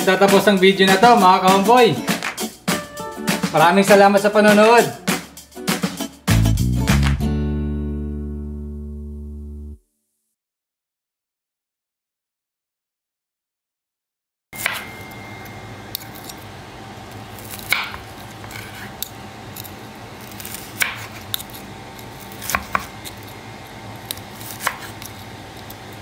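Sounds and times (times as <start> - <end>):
steady low hum: 14.6 - 26.0
knife crunching through crispy skin: 15.4 - 16.5, 17.1 - 26.0.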